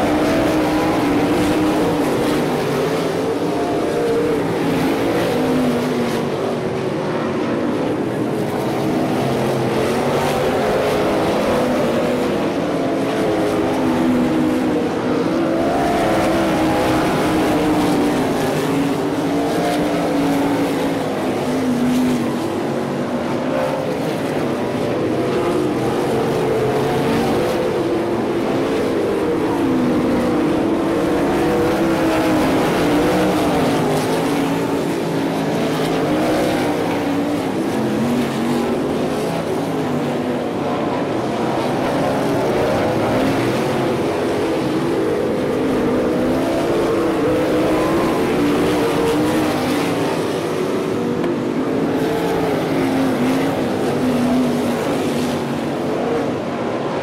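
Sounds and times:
sprint car engines racing: 0:00.0 - 0:57.0.

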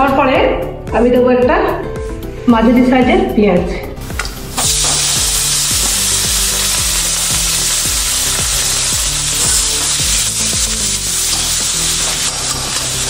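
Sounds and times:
onion sizzling in oil: 0:04.1 - 0:13.0.

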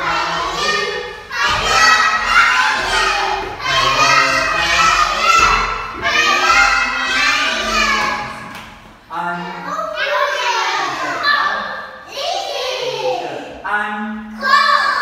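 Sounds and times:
children shouting in chorus: 0:00.0 - 0:08.4.

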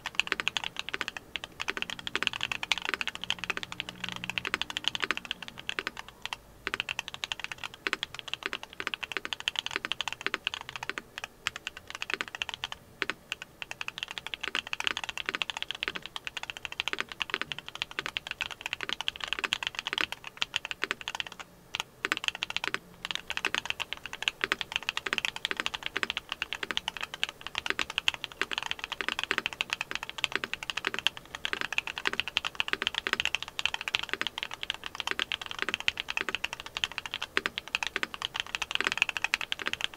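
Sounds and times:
fast typing on mechanical keyboard: 0:00.0 - 0:39.9.

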